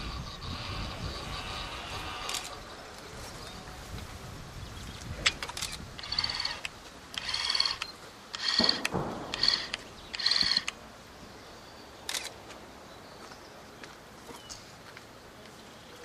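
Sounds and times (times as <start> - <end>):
small electric motor whining: 0.0 - 2.6, 6.0 - 8.8.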